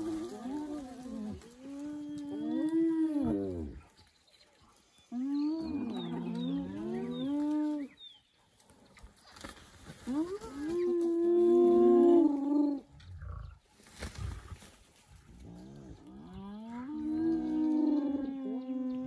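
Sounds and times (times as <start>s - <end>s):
hyenas calling: 15.5s - 19.0s.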